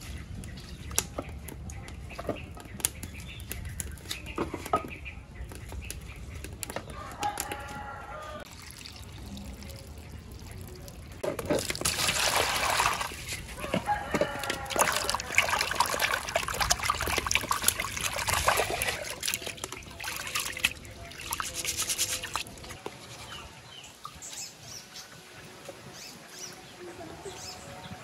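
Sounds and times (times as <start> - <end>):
rice being rinsed in water: 8.4 - 23.7
water splashing in a bowl: 8.4 - 24.2.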